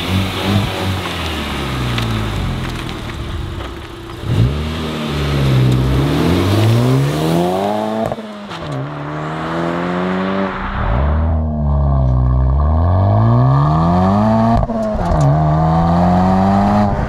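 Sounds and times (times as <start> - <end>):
car engine accelerating hard: 0.0 - 17.0.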